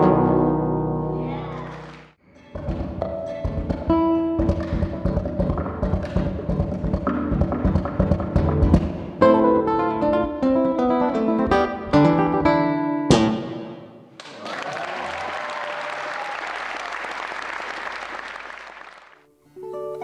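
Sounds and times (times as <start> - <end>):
classical guitar plucked notes: 0.0 - 1.6, 2.3 - 13.8, 19.3 - 20.0
audience applauding: 1.6 - 2.1, 14.2 - 19.3.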